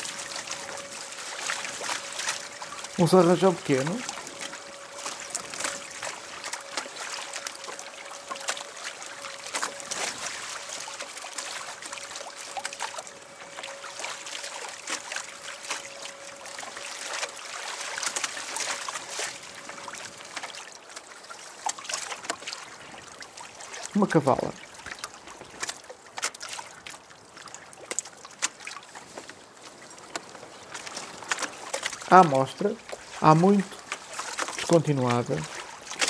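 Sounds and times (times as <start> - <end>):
faint steady whine: 0.0 - 26.0
water splashing against hull: 0.0 - 36.0.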